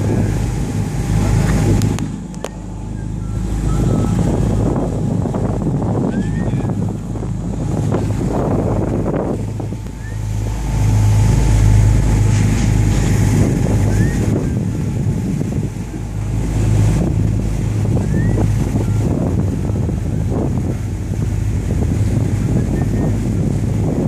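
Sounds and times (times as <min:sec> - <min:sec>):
boat engine running: 0:00.0 - 0:24.0
water rushing along hull: 0:00.0 - 0:24.0
wind buffeting microphone: 0:00.0 - 0:24.0.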